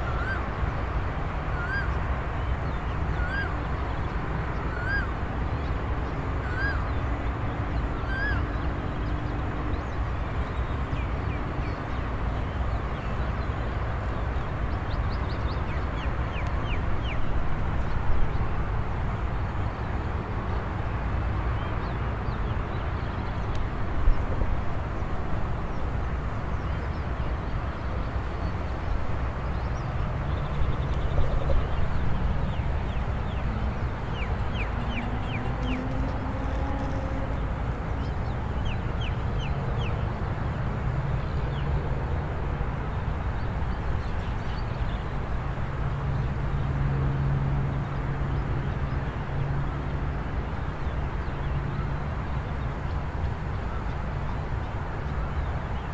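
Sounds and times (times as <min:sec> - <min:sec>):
bird rising call: 0:01.6 - 0:01.9, 0:08.0 - 0:08.4.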